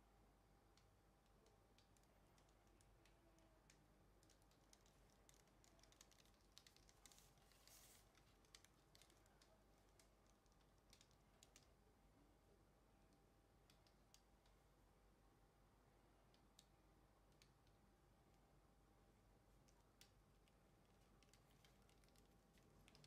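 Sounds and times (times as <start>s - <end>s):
faint clicks: 0.7s - 11.8s, 13.1s - 14.6s, 16.2s - 18.4s, 19.5s - 23.0s
light rustling: 6.6s - 10.0s.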